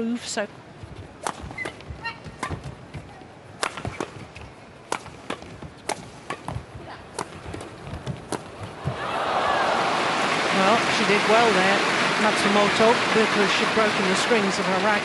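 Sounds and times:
shoes squeaking on court: 0.8 - 9.0
rackets hitting shuttlecock: 1.2 - 2.8, 3.6 - 9.0.

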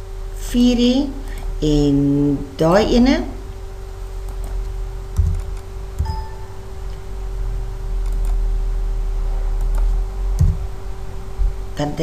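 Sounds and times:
electrical hum: 0.0 - 12.0
dull knocks: 5.2 - 6.1, 10.4 - 10.7
keyboard and mouse clicks: 5.2 - 6.3, 8.0 - 8.4, 9.6 - 10.6.

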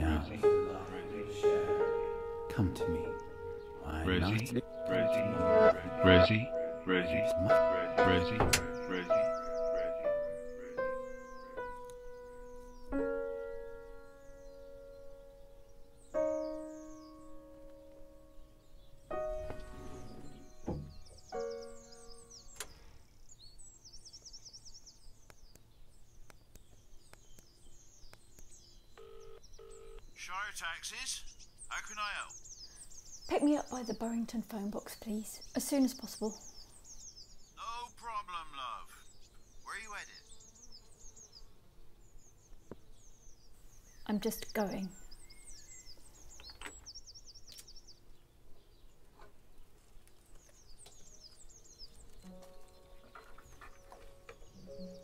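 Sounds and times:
small birds chirping: 0.0 - 55.0
faint knocks: 8.2 - 8.8, 19.2 - 21.3.

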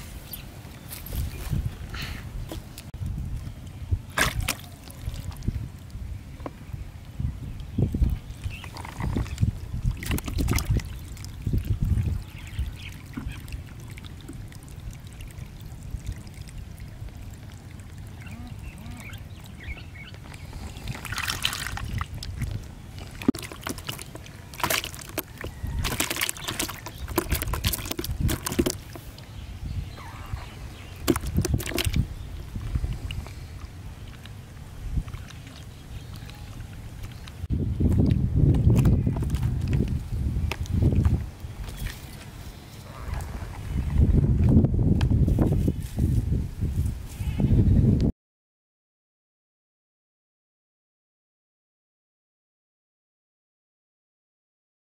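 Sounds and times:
fish splashing in water: 4.1 - 5.6, 8.4 - 18.2, 20.8 - 29.2, 30.9 - 34.3.

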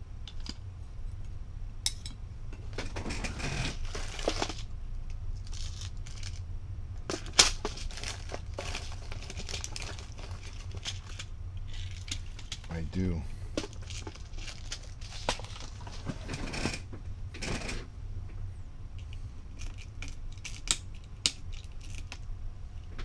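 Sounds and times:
steady low hum: 0.0 - 23.0
small screws rattling in plastic organizer: 13.6 - 16.8.

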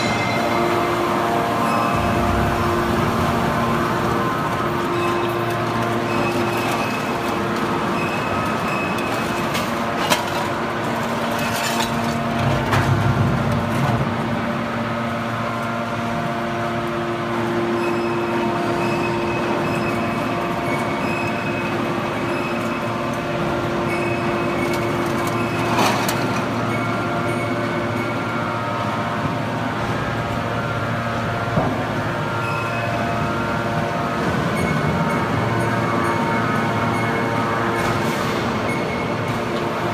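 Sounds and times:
hydraulic pump whining: 0.0 - 8.6
scrap metal baler drone: 0.0 - 39.9.

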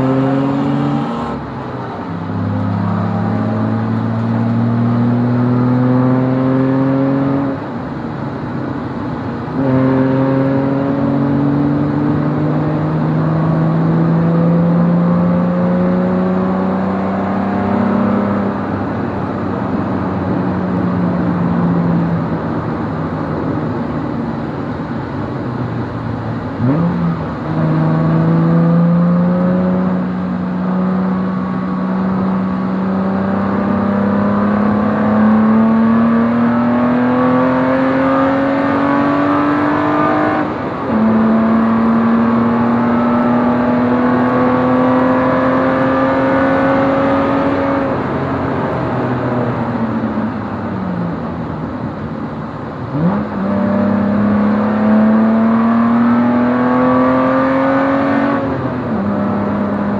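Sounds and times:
race car engine revving: 0.0 - 1.5, 2.2 - 7.6, 9.5 - 18.7, 26.5 - 50.3, 52.9 - 59.9.

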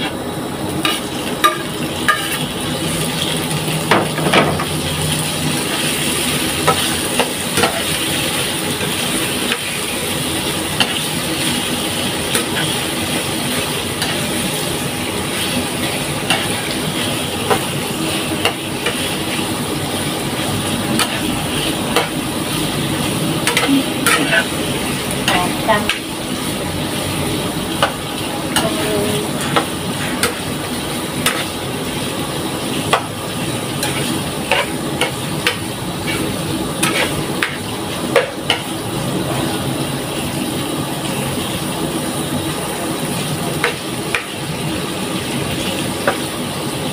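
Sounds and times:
shrimp sizzling in oil: 0.0 - 46.9
spatula scraping pan: 20.0 - 22.2, 23.4 - 26.0, 31.2 - 31.6, 32.9 - 38.7.

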